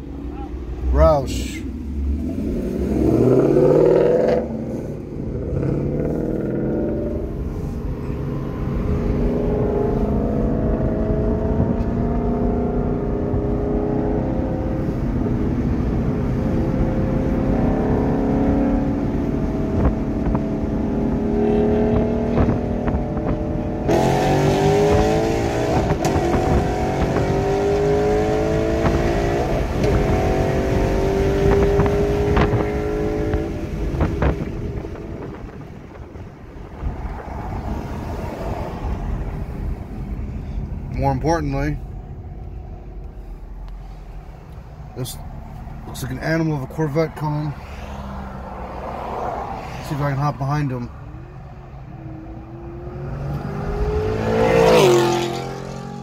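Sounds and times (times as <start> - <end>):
car engines accelerating hard: 0.0 - 56.0
wind noise rushing: 1.9 - 40.2.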